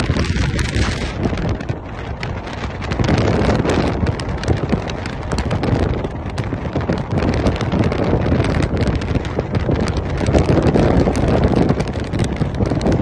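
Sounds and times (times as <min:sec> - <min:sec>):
crackling spikes: 0:00.0 - 0:13.0
low vehicle rumble: 0:00.0 - 0:13.0
wind buffeting microphone: 0:00.0 - 0:13.0.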